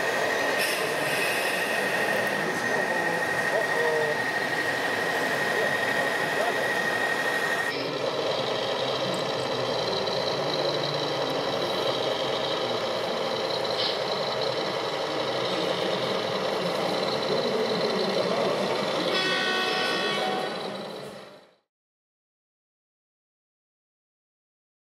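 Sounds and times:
model truck diesel engine idling: 7.8s - 19.6s.

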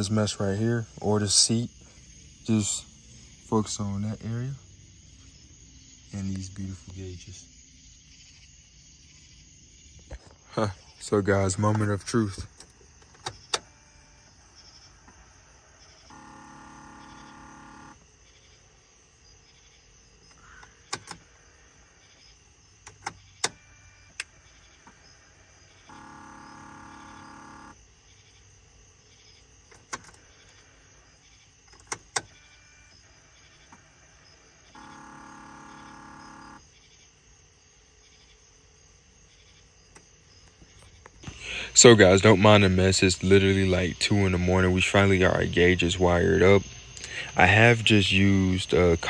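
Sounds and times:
electronic warning tone: 16.1s - 18.0s, 25.9s - 27.8s, 34.8s - 36.6s
sharp clicks: 20.3s - 21.2s, 29.7s - 30.2s, 31.7s - 32.3s.

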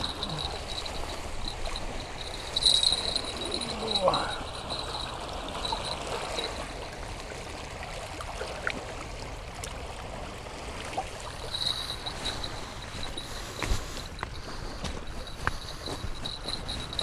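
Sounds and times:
lake waves lapping: 0.0s - 17.0s.

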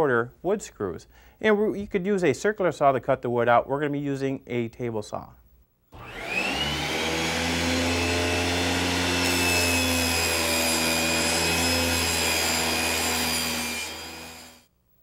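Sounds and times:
table saw cutting plywood: 6.0s - 14.6s.

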